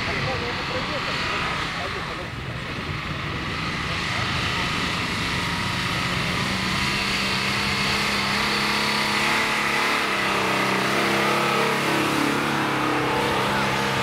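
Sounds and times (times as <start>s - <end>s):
suv engine running under load: 0.0s - 14.0s.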